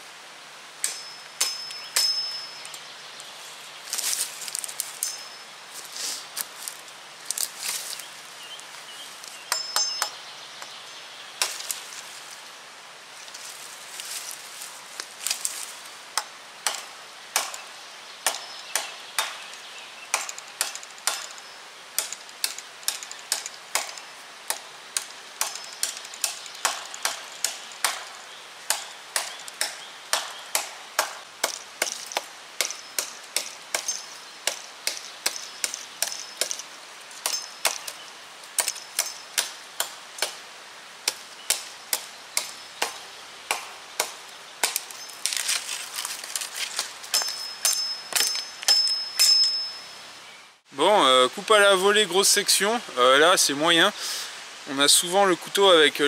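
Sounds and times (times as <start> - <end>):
knife chopping into branch: 22.0 - 28.1, 41.1 - 48.8.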